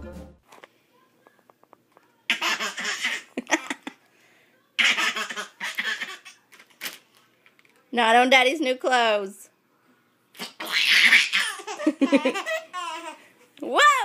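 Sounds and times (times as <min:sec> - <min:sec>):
baby giggling: 0:02.3 - 0:04.0, 0:04.8 - 0:06.4, 0:10.4 - 0:13.2.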